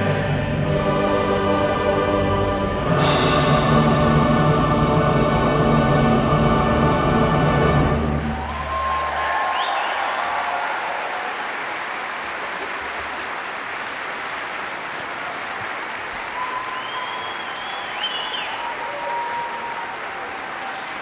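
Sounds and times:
audience applauding in hall: 8.0 - 21.0.

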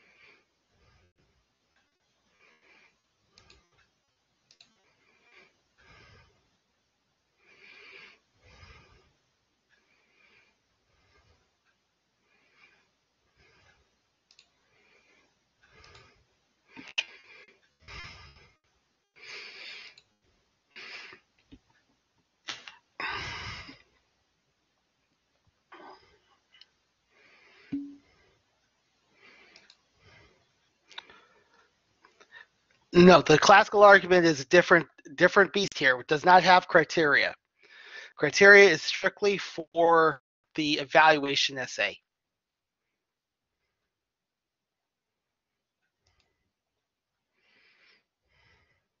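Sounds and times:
soft clicks: 3.4 - 4.8, 14.2 - 14.6, 29.5 - 29.8.

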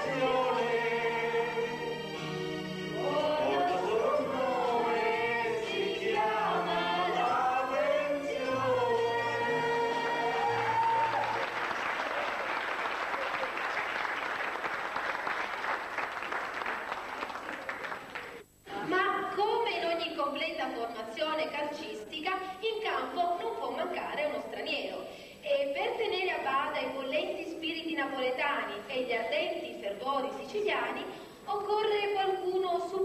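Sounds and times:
men singing together: 0.0 - 10.8
audience applauding: 10.0 - 18.4.

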